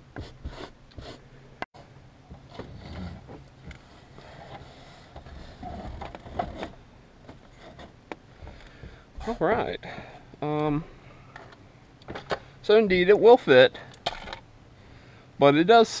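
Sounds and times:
plastic console knocking and scraping: 4.2s - 9.4s.

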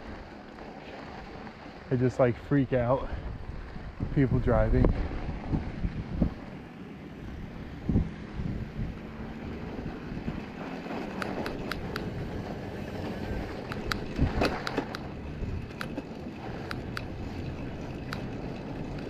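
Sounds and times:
tyres rushing through snow: 0.0s - 19.0s
sharp ticks: 11.1s - 12.1s, 13.6s - 16.0s, 16.6s - 17.2s, 17.9s - 19.0s.

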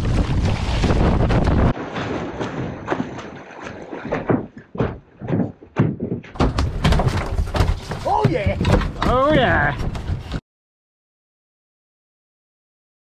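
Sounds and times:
fish and gaff thumping hull: 0.0s - 10.4s.

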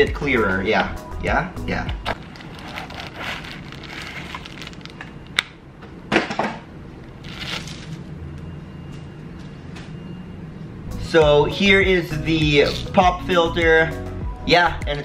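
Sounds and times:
plastic bag crinkling: 2.2s - 5.2s, 7.2s - 8.0s.

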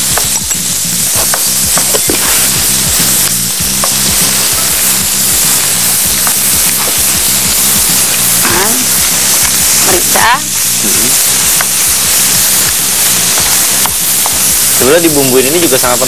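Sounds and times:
vegetables sizzling in frying pan: 0.0s - 16.0s
wooden spatula scraping and tapping: 0.1s - 2.5s.

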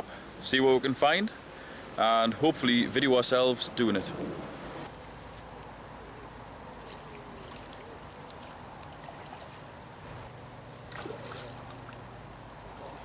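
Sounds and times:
water trickling: 5.0s - 13.0s.

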